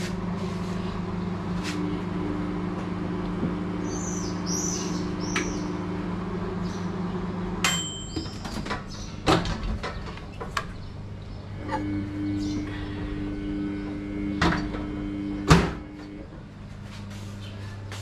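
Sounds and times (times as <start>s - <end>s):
microwave oven humming: 0.0s - 18.0s
timer bell ding: 7.6s - 8.4s.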